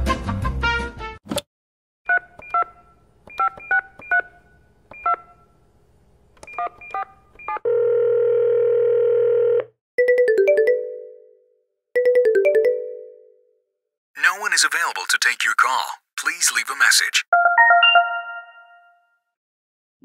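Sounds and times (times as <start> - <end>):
touch-tone keypad beeps: 3.3 - 4.3
telephone ringback tone: 7.6 - 10.6
smartphone ringtone: 7.7 - 11.4, 17.3 - 19.0.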